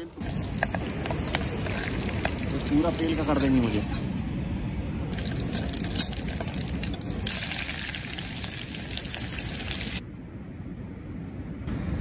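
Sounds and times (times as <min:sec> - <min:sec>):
seeds sizzling in hot oil: 0:00.2 - 0:03.8, 0:05.1 - 0:10.0.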